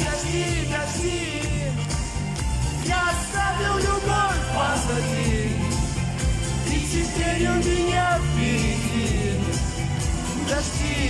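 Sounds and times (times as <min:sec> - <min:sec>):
man singing into a microphone: 0:00.0 - 0:01.8, 0:02.8 - 0:05.7, 0:06.6 - 0:09.7, 0:10.3 - 0:11.0
pop backing music with bass: 0:00.0 - 0:11.0.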